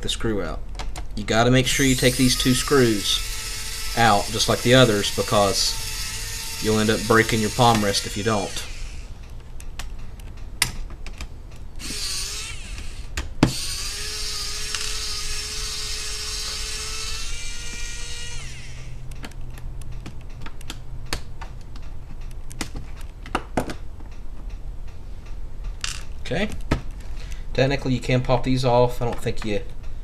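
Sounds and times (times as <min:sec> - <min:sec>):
electric screwdriver whining: 0:01.7 - 0:09.2, 0:11.8 - 0:19.0.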